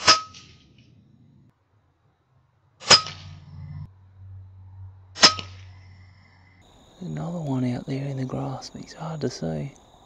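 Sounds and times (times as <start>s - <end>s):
air rifle shots: 0.0s - 0.8s, 2.8s - 3.3s, 5.2s - 5.6s.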